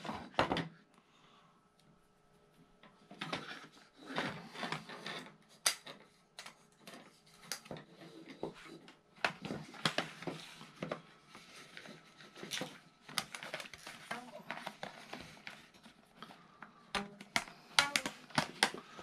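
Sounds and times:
plastic toy track clicks and knocks: 0:17.0 - 0:19.0.

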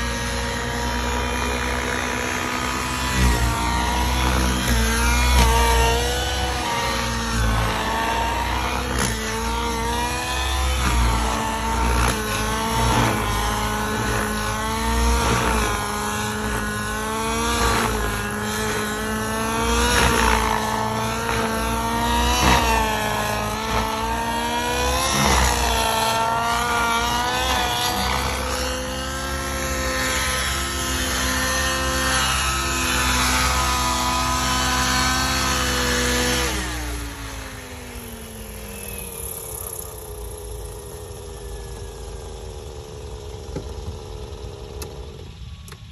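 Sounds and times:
model helicopter engine and rotors: 0:00.0 - 0:45.9.

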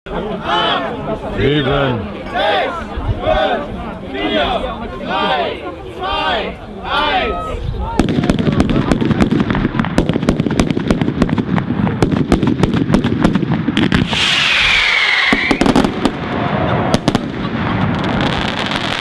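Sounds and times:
fireworks bangs and crackling: 0:07.8 - 0:19.0
firework whistle falling in pitch: 0:14.0 - 0:16.9.

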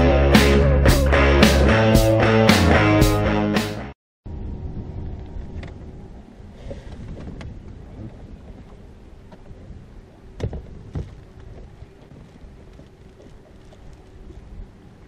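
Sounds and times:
wind rumbling on microphone: 0:04.3 - 0:15.0
light knocks on a boat: 0:10.4 - 0:11.2.

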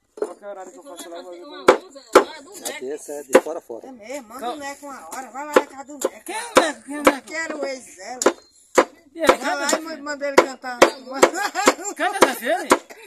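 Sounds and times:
machete chopping on wooden board: 0:08.2 - 0:09.8.

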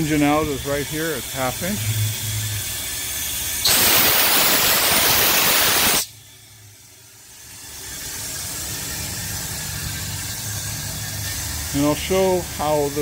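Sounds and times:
steam blower hissing and humming: 0:00.0 - 0:13.0
loud steam blast hiss: 0:02.5 - 0:06.5.

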